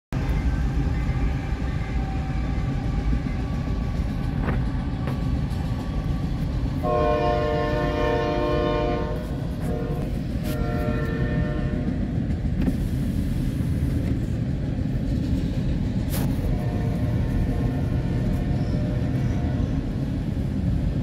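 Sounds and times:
train wheels rumbling on rails: 0.1s - 21.0s
locomotive horn: 6.8s - 12.0s, 16.3s - 19.8s.

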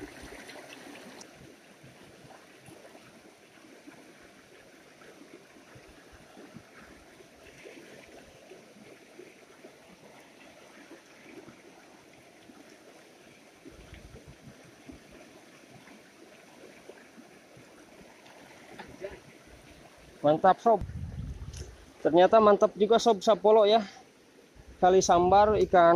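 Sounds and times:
stream gurgling over rocks: 0.0s - 25.9s
low rumble: 20.8s - 21.9s.

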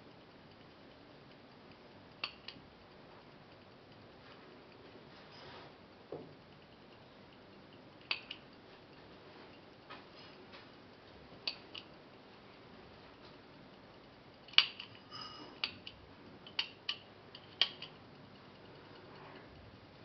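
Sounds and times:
stopwatch clicking: 0.2s - 4.8s, 6.4s - 9.9s, 10.8s - 12.2s, 13.1s - 15.0s, 15.6s - 19.3s.

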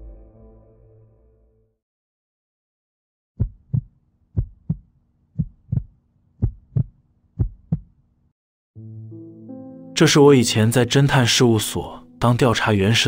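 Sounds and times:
low music tone: 0.0s - 1.6s, 8.8s - 13.0s
heartbeat thumps: 3.4s - 8.0s.

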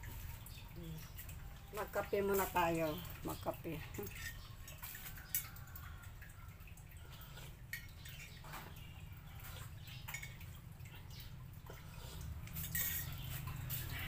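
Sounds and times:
spoon clinking in cup: 12.5s - 13.6s.

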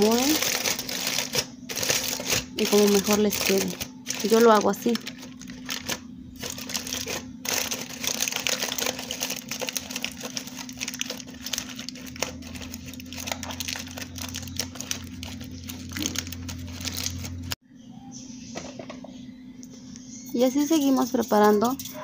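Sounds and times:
aluminium foil crinkling: 0.0s - 17.6s.

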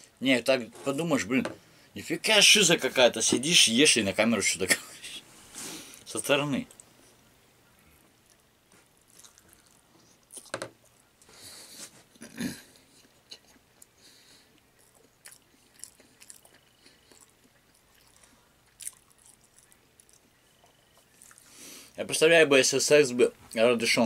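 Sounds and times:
person chewing wetly: 8.2s - 11.3s, 13.0s - 22.0s.

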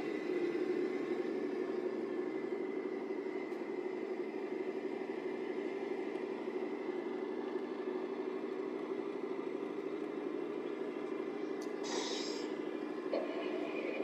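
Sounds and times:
rc truck mechanical drone: 0.0s - 14.0s
short hiss: 11.8s - 12.5s.

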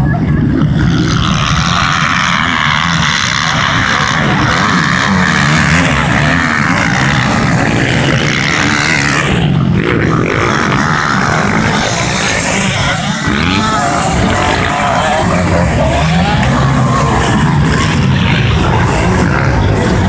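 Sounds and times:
dirt bike engines revving: 0.0s - 20.0s.

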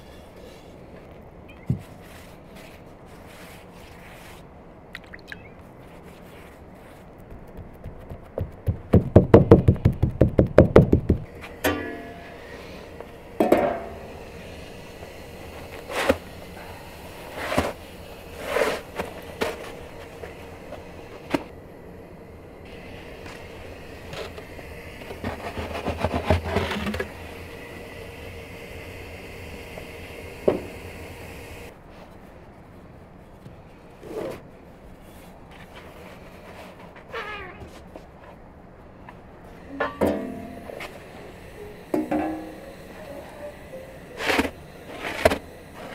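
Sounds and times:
faint steady hum: 0.0s - 45.9s
wooden peel scraping oven floor: 17.2s - 21.5s, 25.0s - 27.2s, 44.1s - 45.9s.

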